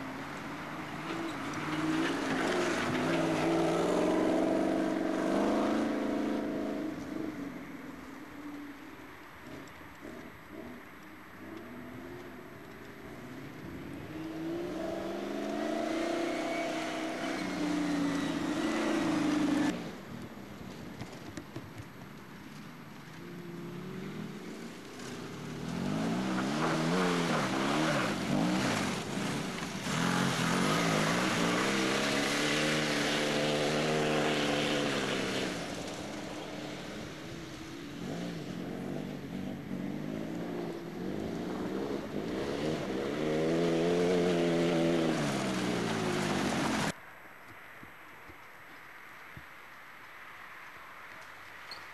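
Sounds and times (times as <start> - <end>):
racing vehicle engine revving: 1.0 - 7.3, 14.1 - 19.8, 24.8 - 36.0.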